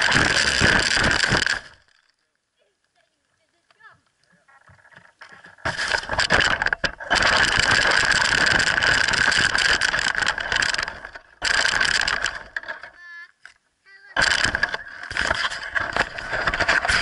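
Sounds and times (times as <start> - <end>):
tires tearing through grass and leaves: 5.6 - 12.4, 14.2 - 17.0.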